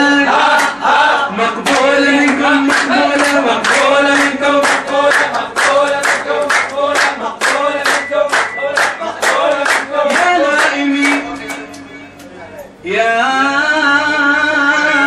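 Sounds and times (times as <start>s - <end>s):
men singing a chant: 0.0s - 12.2s, 12.8s - 15.0s
hand clapping: 0.5s - 0.8s, 1.6s - 12.4s.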